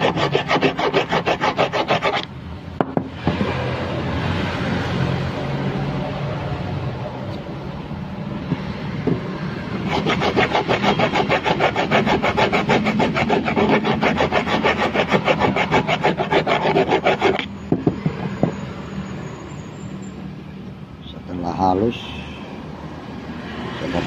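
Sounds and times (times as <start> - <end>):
metal file rasping on aluminium: 0.0 - 2.3, 9.8 - 18.6.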